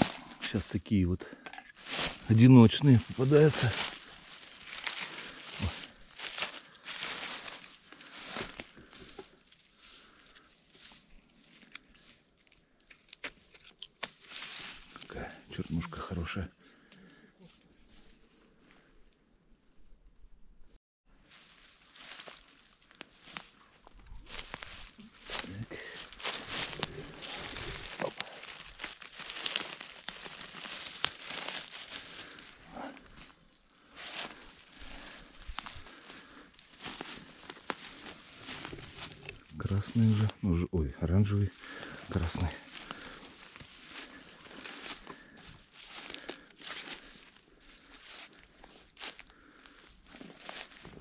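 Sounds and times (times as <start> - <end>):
dry leaves and twigs rustling: 0.0 - 18.9, 21.2 - 51.0
twig snapping: 11.6 - 15.0, 26.0 - 32.5, 36.8 - 39.4.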